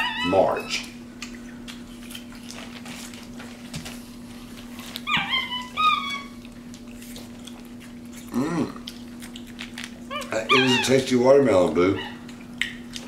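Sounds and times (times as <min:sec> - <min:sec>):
steady low hum: 0:00.0 - 0:13.0
monkey chirps: 0:10.1 - 0:11.0.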